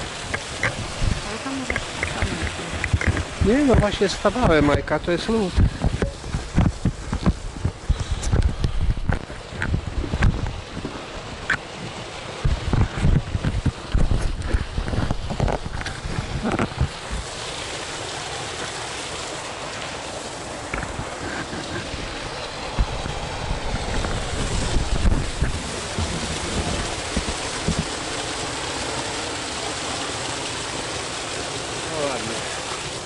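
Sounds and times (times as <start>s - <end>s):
low thumps: 0.0s - 17.2s
wind buffeting microphone: 0.0s - 17.7s, 20.6s - 28.3s
stream water rushing: 0.0s - 33.0s.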